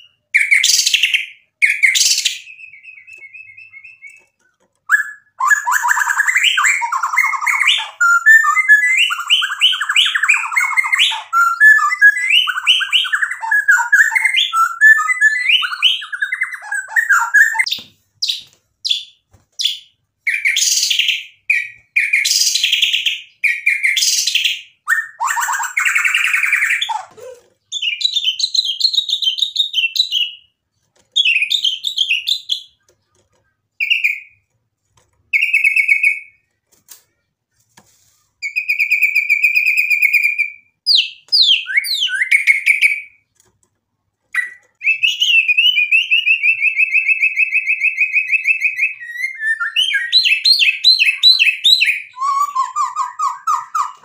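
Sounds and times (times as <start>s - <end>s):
bird singing whistled phrases: 0.0s - 4.2s, 4.9s - 19.1s, 38.4s - 43.2s, 44.4s - 54.0s.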